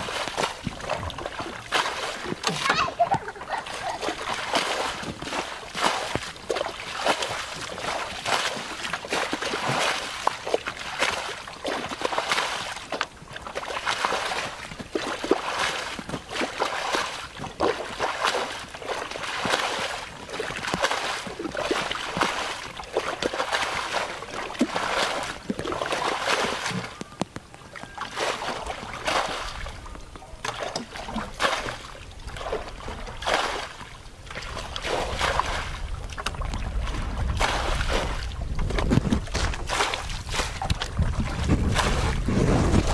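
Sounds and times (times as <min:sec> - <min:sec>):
plastic barrel dragged through water: 0:00.0 - 0:13.0, 0:28.1 - 0:42.9
people wading through muddy water: 0:00.0 - 0:42.9.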